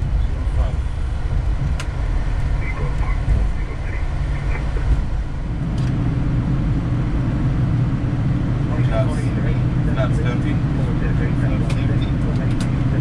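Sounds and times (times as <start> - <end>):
airflow and engines hum: 0.0 - 13.0
airliner rolling rumble: 0.0 - 13.0.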